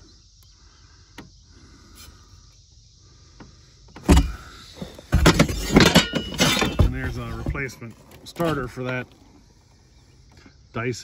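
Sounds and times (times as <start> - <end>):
scraping and clunking in a box: 3.9 - 9.5.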